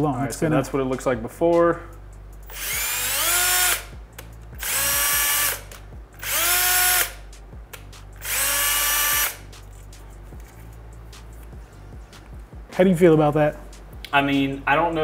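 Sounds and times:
cordless drill whining: 2.5 - 3.9, 4.6 - 7.2, 8.2 - 9.4.

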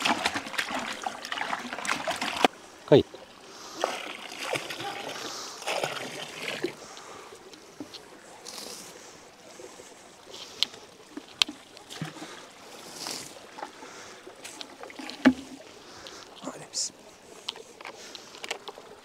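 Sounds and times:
stream running over stones: 0.0 - 19.0.

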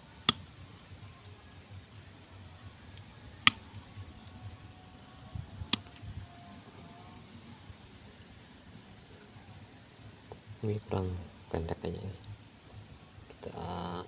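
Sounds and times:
hand cutters snipping stems: 0.2 - 0.5, 3.4 - 3.8.

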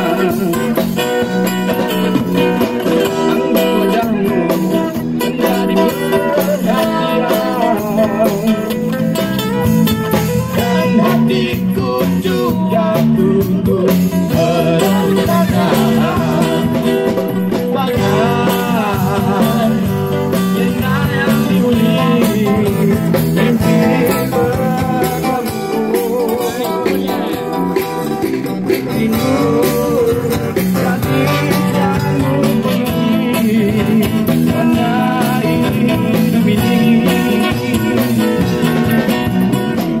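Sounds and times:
electric guitar accompaniment: 0.0 - 40.0
man singing rock song: 0.0 - 40.0.

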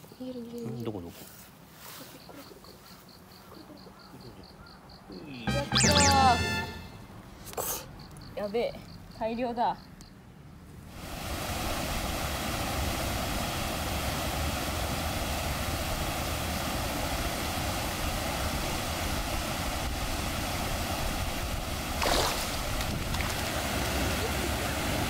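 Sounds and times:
river water rushing over weir: 11.0 - 25.0.

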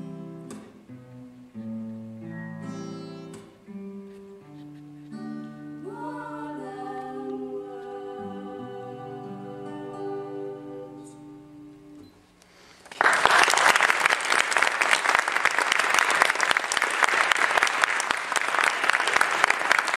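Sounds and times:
acoustic guitar and voice: 0.0 - 12.2
audience applause: 12.8 - 20.0.

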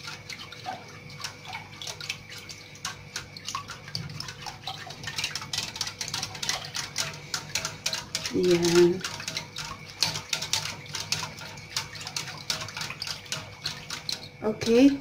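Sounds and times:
liquid sloshing and splashing: 0.0 - 15.0
whisk ticking against a pot: 0.0 - 15.0.

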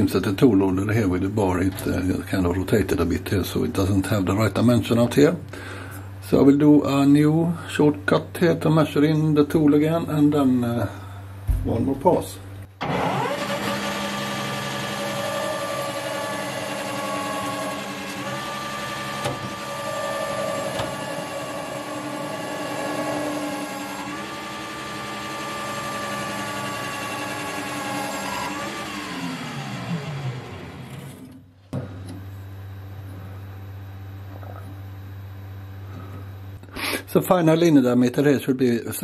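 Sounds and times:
lathe motor whine: 12.8 - 31.4
lathe spindle winding down: 12.8 - 31.4.

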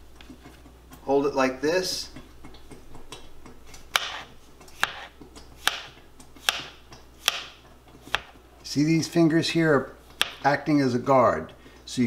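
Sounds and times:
knife scraping: 3.9 - 8.4
knife tapping on cutting board: 4.8 - 8.3.

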